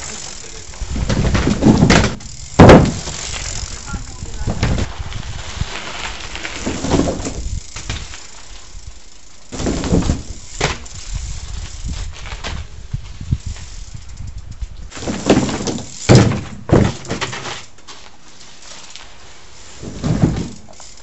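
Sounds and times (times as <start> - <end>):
bicycle tyres rumbling over gravel: 0.0 - 21.0
loud thump: 1.0 - 3.2
wooden boards knocking and rattling: 1.0 - 3.2, 15.0 - 17.5, 19.8 - 20.6.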